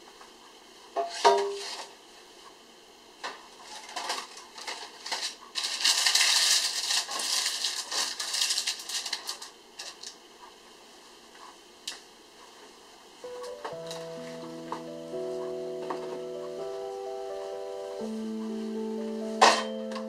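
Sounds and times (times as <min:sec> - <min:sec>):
paper liner crinkling and rustling: 0:03.6 - 0:10.2.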